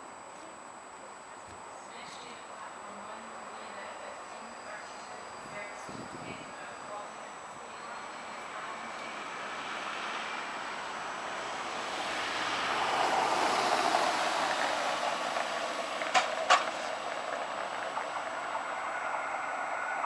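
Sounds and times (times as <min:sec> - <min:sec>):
vehicle passing: 0:07.8 - 0:20.0.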